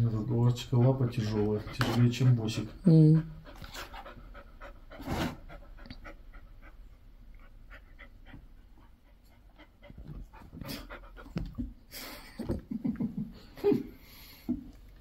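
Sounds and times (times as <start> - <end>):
dog panting: 0.6 - 11.8.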